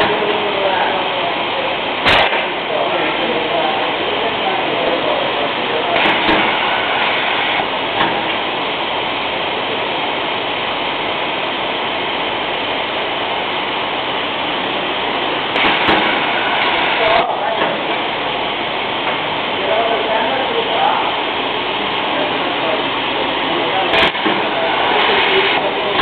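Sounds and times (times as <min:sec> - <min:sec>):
paper stacking machine running: 0:00.0 - 0:09.9, 0:14.5 - 0:26.0.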